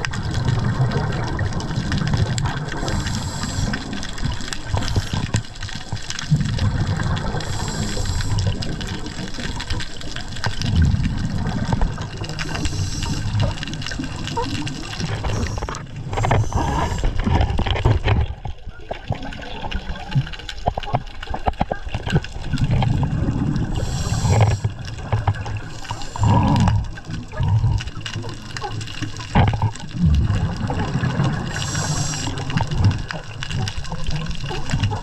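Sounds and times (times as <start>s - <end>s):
exhaled bubbles gushing underwater: 0.0s - 35.0s
hissing regulator inhalations: 2.8s - 4.0s, 7.4s - 8.6s, 12.4s - 13.4s, 15.2s - 17.2s, 23.8s - 24.8s, 25.6s - 26.9s, 31.4s - 32.5s.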